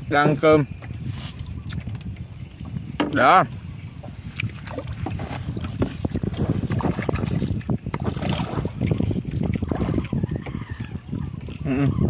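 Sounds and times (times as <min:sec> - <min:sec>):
wind buffeting microphone: 0:00.0 - 0:12.0
fish knocking and rustling: 0:04.0 - 0:11.6.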